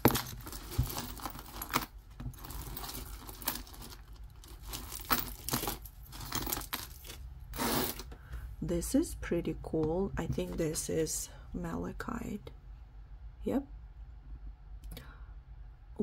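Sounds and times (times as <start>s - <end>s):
jewelry clinking and rattling: 0.0s - 8.1s.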